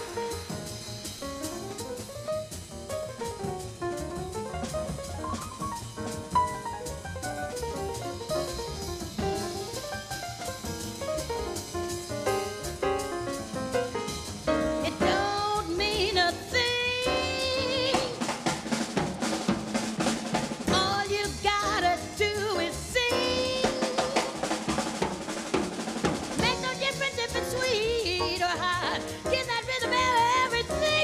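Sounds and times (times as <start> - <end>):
upright bass: 0.0 - 18.2, 20.7 - 23.6
drum kit: 0.0 - 31.0
piano: 0.0 - 31.0.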